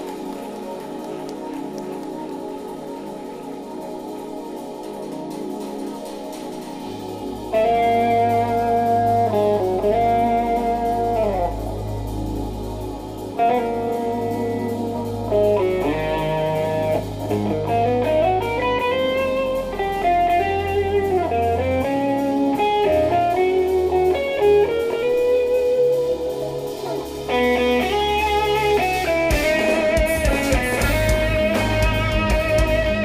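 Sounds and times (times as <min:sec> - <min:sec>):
drums: 0:00.0 - 0:33.0
electric guitar melody: 0:00.0 - 0:33.0
held bass notes: 0:07.5 - 0:33.0
fast chugging guitar rhythm: 0:13.2 - 0:33.0.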